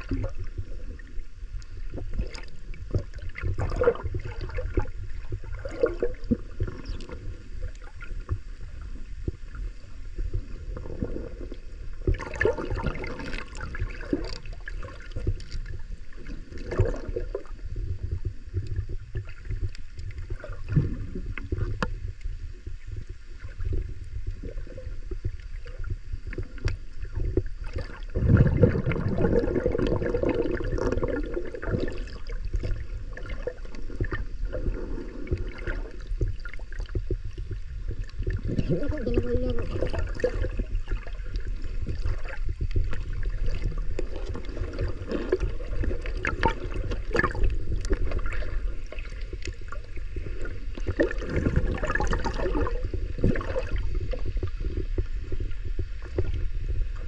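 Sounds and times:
underwater rumble of moving water: 0:00.0 - 0:57.0
underwater clicks and knocks: 0:16.6 - 0:22.3, 0:25.1 - 0:34.3, 0:35.3 - 0:49.9
water rushing: 0:37.4 - 0:54.7.

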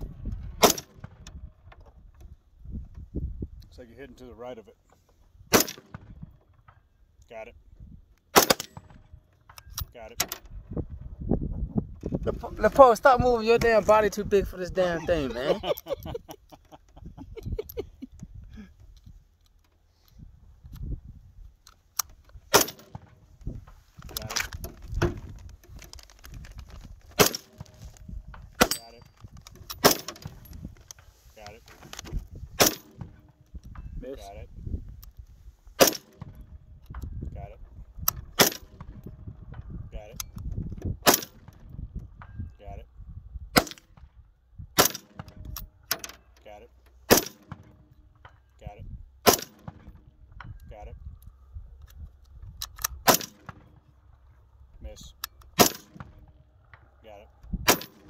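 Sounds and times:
rifle gunshots: 0:00.6 - 0:01.1, 0:05.5 - 0:06.1, 0:08.3 - 0:09.0, 0:22.5 - 0:23.0, 0:27.2 - 0:27.8, 0:29.8 - 0:30.3, 0:32.6 - 0:33.2, 0:35.8 - 0:36.3, 0:38.4 - 0:38.9, 0:41.0 - 0:41.5, 0:44.8 - 0:45.2, 0:47.1 - 0:47.7, 0:49.2 - 0:49.9, 0:53.0 - 0:53.6, 0:55.6 - 0:56.2, 0:57.7 - 0:58.0
rifle handling clicks: 0:24.0 - 0:31.1, 0:51.2 - 0:53.6, 0:55.1 - 0:58.0.

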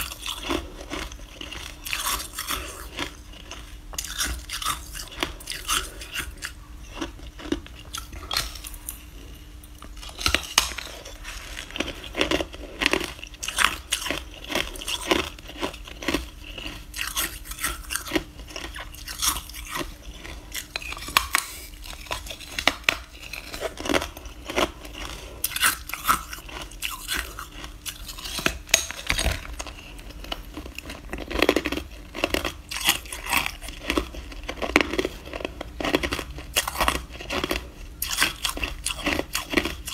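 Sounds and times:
person chewing crushed ice: 0:00.0 - 0:39.9.

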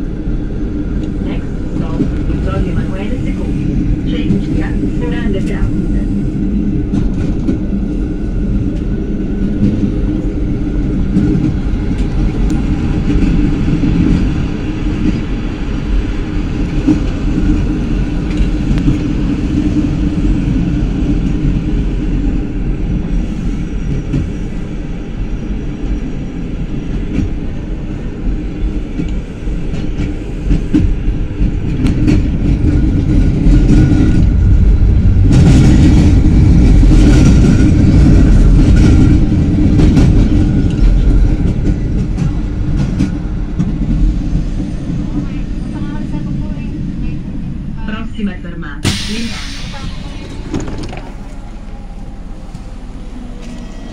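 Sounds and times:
tram rumbling on tracks: 0:00.0 - 0:53.9
hiss: 0:48.9 - 0:50.5.

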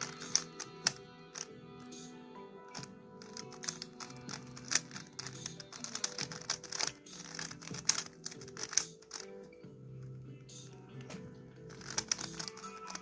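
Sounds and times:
puzzle cube clicking: 0:00.0 - 0:02.1, 0:02.7 - 0:09.4, 0:11.7 - 0:13.0
background music: 0:00.0 - 0:13.0.

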